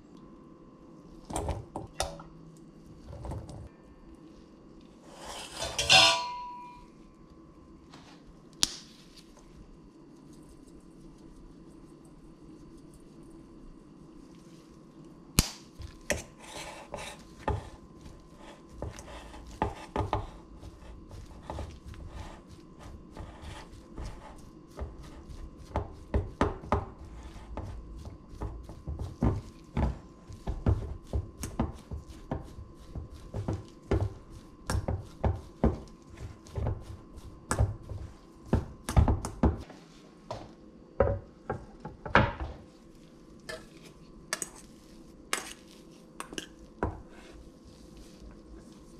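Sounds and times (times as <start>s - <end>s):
fork mashing potato in metal bowl: 5.1s - 6.8s, 15.8s - 39.6s, 43.4s - 48.9s.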